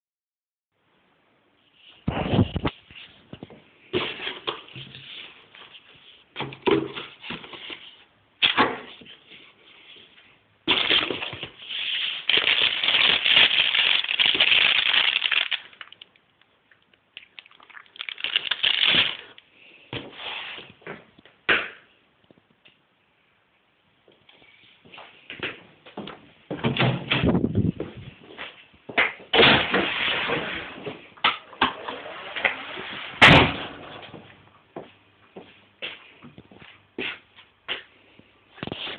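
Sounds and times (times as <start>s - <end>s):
plastic packets crinkling: 10.7s - 19.4s.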